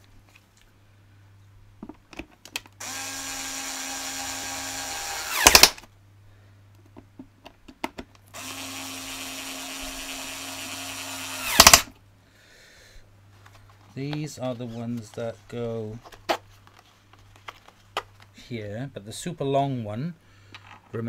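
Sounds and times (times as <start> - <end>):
electric screwdriver whining: 2.8 - 5.8, 8.4 - 11.9.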